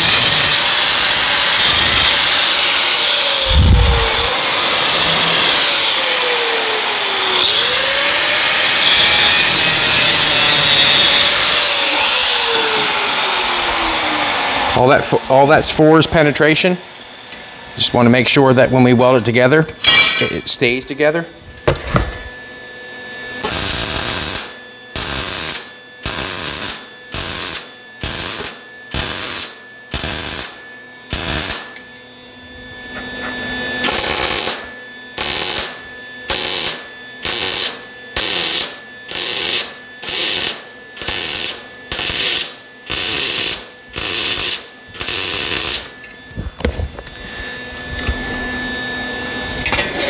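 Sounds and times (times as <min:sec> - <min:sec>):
welder arc bursts: 0:00.0 - 0:16.6, 0:23.4 - 0:31.7, 0:33.8 - 0:45.9.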